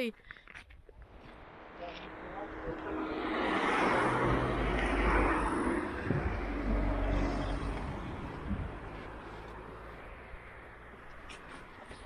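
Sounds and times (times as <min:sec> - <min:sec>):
car driving past: 0:02.0 - 0:11.0.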